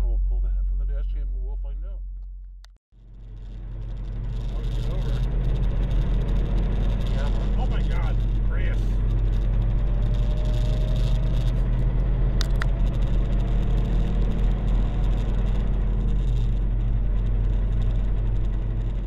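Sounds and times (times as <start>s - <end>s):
truck diesel engine droning: 3.0s - 19.0s
sharp clicks: 4.1s - 19.0s.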